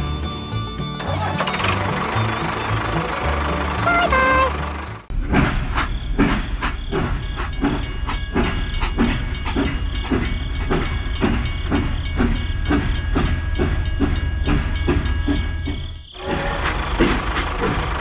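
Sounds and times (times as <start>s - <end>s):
toy steam locomotive chuffing: 1.0s - 5.1s, 5.7s - 18.0s
faint high tone: 3.8s - 4.6s.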